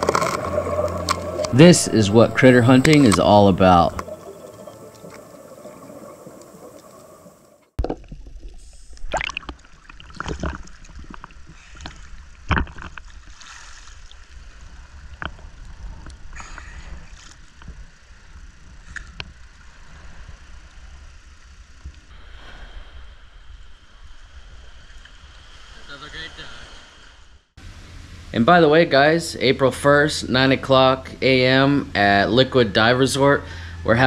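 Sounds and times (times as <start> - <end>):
water sloshing and splashing: 0.0 - 22.4.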